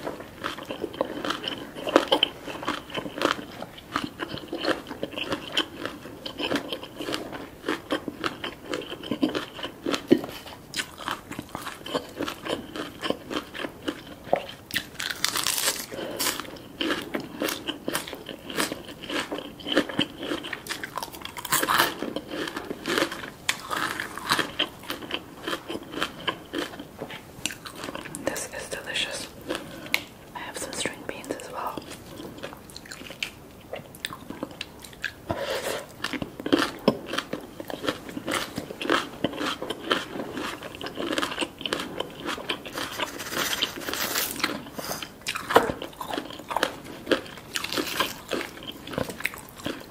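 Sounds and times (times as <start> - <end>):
crunchy chewing: 0.0 - 49.9
crisp bite into lettuce: 14.8 - 16.4, 42.4 - 45.6.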